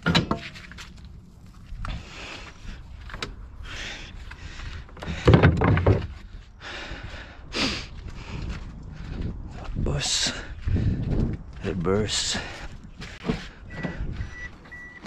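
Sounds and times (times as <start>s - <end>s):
rustling and knocking of gear: 4.1s - 6.5s.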